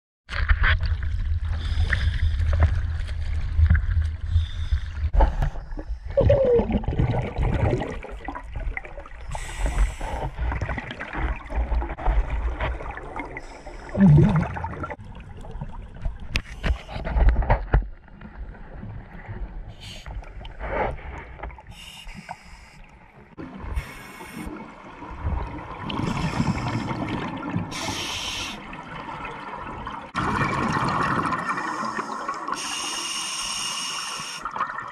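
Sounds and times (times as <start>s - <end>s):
scuba regulator exhaust bubbles: 5.9s - 15.2s.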